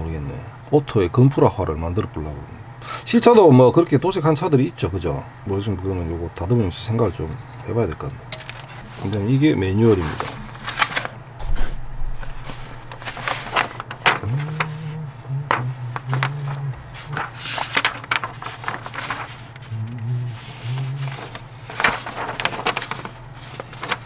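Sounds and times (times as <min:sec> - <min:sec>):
paper rustling and pages turning: 0:06.9 - 0:24.0
low hum: 0:11.3 - 0:23.0.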